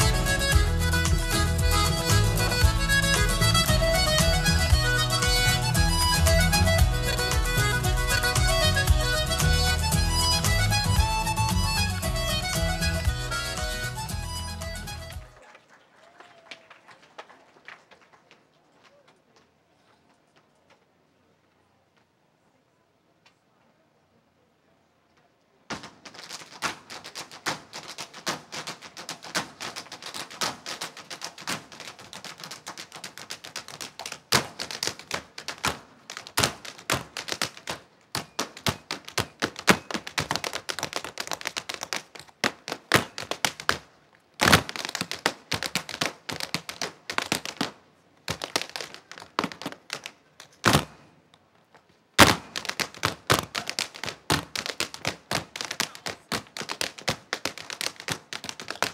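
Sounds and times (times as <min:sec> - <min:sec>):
dance shoes tapping on stage: 0:00.0 - 0:15.4, 0:25.7 - 0:51.0, 0:51.7 - 0:58.9.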